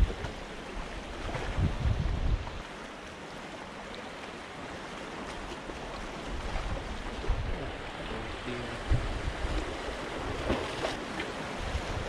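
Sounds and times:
wind on microphone: 0.0 - 2.7, 6.2 - 12.0
sea waves splashing on concrete: 2.4 - 12.0.

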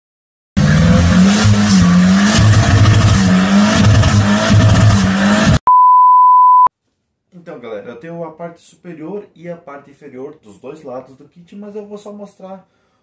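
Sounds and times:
car engine revving: 0.6 - 5.6.

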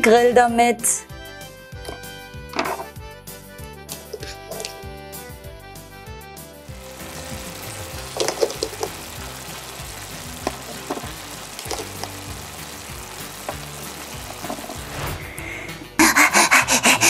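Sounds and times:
soft background music: 0.0 - 17.0
frying sizzle: 6.6 - 15.5.

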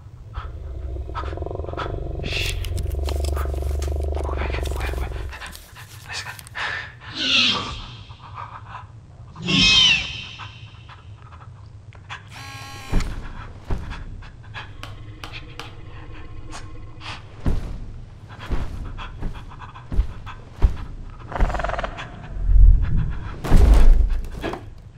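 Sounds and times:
person panting heavily: 4.4 - 7.1
shrill creature calls: 7.1 - 8.2, 9.4 - 10.9
short buzz: 12.3 - 13.2
dull thumps: 17.3 - 22.0.

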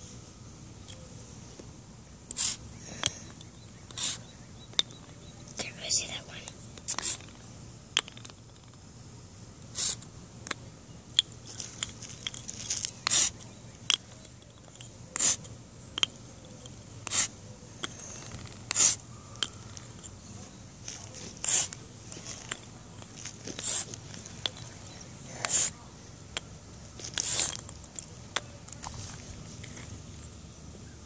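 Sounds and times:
chalk scraping on concrete: 2.3 - 2.6, 3.9 - 4.2, 9.8 - 10.0, 13.0 - 13.4, 15.2 - 15.5, 17.0 - 17.3, 18.7 - 19.0, 21.2 - 22.5, 23.4 - 24.0, 25.4 - 25.7, 27.0 - 27.6.

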